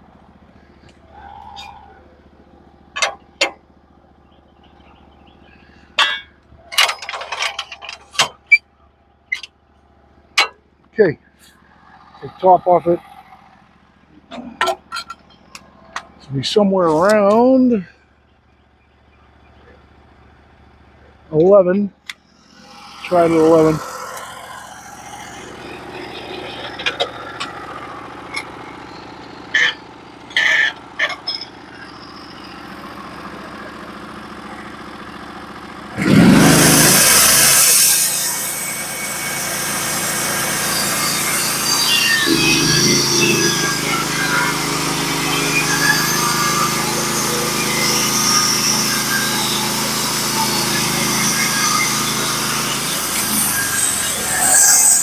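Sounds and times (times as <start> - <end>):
faint engine hum: 0.0 - 55.0
steel clamps clanking: 6.0 - 8.6.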